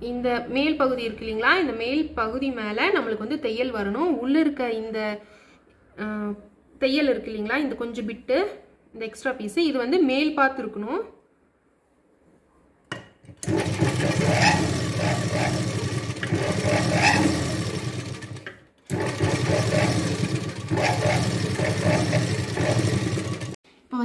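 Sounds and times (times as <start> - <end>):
sewing machine running: 13.4 - 23.6.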